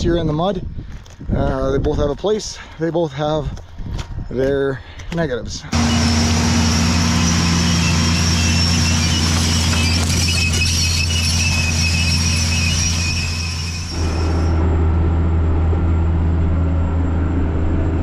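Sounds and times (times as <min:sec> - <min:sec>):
tractor engine running: 0:05.1 - 0:17.9
engine drone inside tractor cab: 0:05.7 - 0:18.0
high squealing machinery whine: 0:05.7 - 0:18.0.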